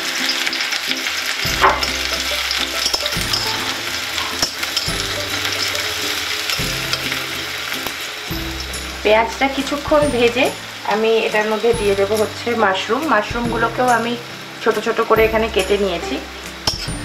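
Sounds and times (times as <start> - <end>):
onion sizzling in oil: 0.0 - 17.0
spatula scraping a pan: 1.5 - 9.0.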